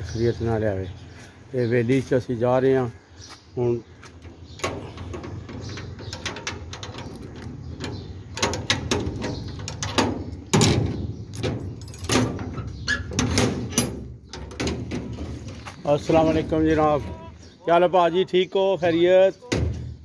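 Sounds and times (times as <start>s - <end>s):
metal gate rattling and clanking: 4.2s - 17.0s
padlock and latch clinking: 4.6s - 14.7s.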